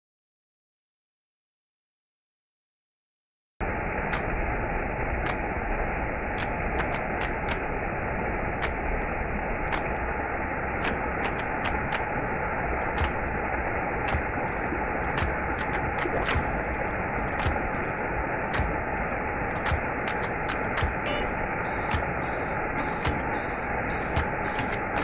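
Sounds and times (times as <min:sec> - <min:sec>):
waterfall rushing: 0:03.6 - 0:25.0
sharp ticks: 0:06.4 - 0:07.7, 0:10.8 - 0:12.1, 0:13.0 - 0:13.2, 0:14.0 - 0:14.3, 0:15.2 - 0:16.5, 0:21.7 - 0:25.0.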